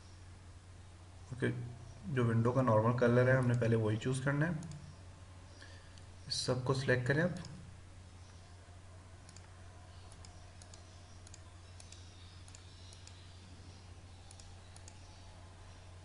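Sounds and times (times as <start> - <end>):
steady low hum: 0.0 - 16.0
computer mouse clicks: 4.6 - 5.0, 9.2 - 13.3, 14.2 - 15.2.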